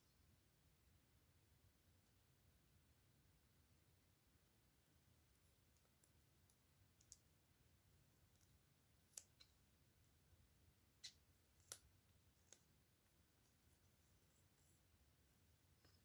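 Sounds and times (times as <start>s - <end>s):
small clicks and taps: 5.3s - 7.3s.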